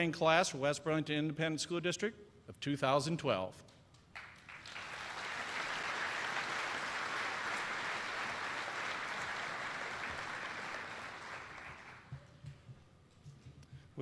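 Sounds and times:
audience applauding: 0:04.2 - 0:12.1.

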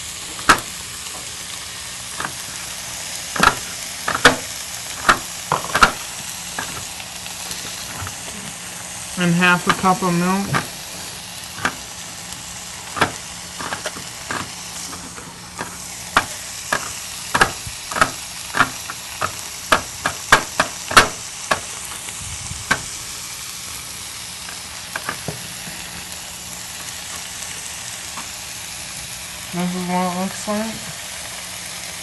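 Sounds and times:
onions sizzling in skillet: 0:00.0 - 0:32.0
knife chopping on cutting board: 0:17.4 - 0:18.9, 0:19.7 - 0:21.6.

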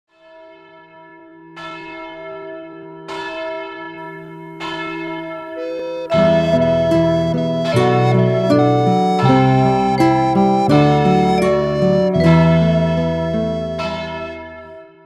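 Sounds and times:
church bell tolling: 0:00.2 - 0:15.0
instrumental music: 0:05.1 - 0:15.0.

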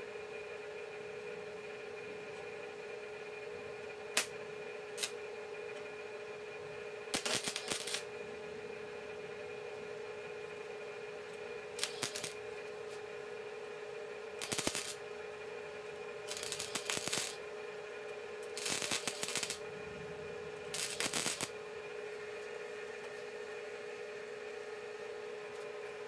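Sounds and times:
steady hum: 0:00.0 - 0:26.0
welder arc crackling: 0:05.0 - 0:05.2, 0:07.1 - 0:08.2, 0:11.7 - 0:12.4, 0:14.4 - 0:15.0, 0:16.2 - 0:17.4, 0:18.4 - 0:21.6.

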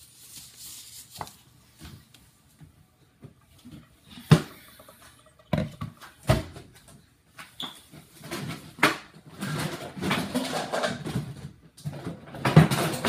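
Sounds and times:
plastic bowl set down: 0:04.1 - 0:06.7.

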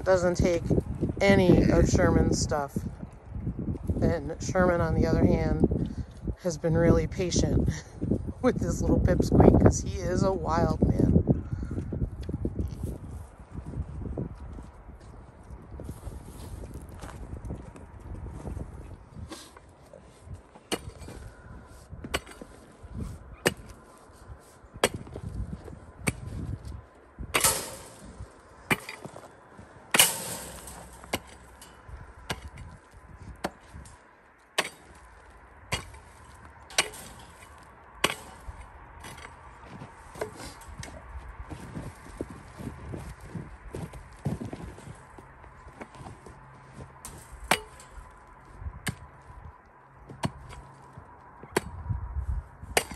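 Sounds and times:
pickaxe striking frozen dirt: 0:20.6 - 0:24.0, 0:24.8 - 0:33.9, 0:34.5 - 0:45.0, 0:45.6 - 0:48.1, 0:48.8 - 0:49.2, 0:50.0 - 0:51.8, 0:52.7 - 0:52.9.

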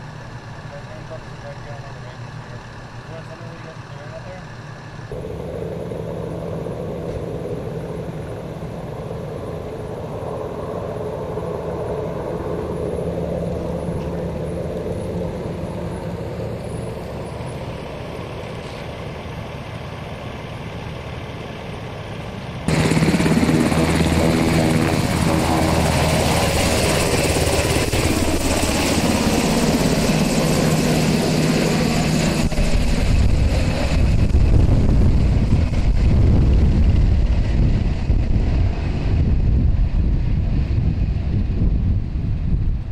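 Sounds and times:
helicopter rotor and turbine engine: 0:00.0 - 0:42.9
wind rumble on microphone: 0:32.0 - 0:42.9.

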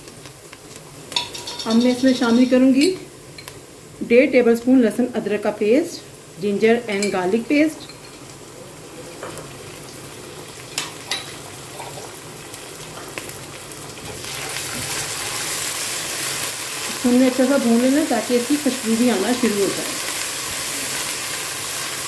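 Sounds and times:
onions frying: 0:00.0 - 0:22.0.

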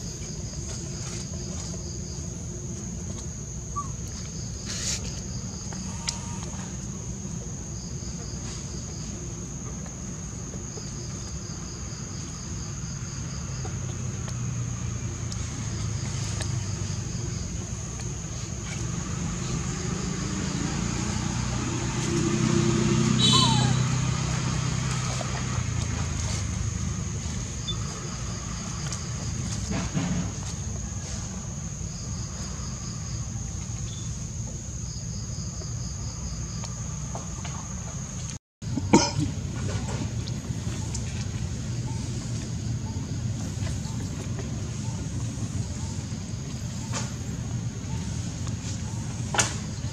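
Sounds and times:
pulsed insect chirp: 0:00.0 - 0:29.5, 0:30.6 - 0:38.3, 0:40.4 - 0:49.9
insects droning whine: 0:00.0 - 0:49.9
low steady rumble: 0:23.3 - 0:49.9.

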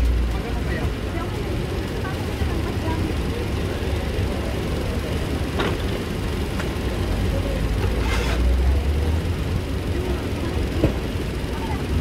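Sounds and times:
vehicle engine rumbling: 0:00.0 - 0:12.0.

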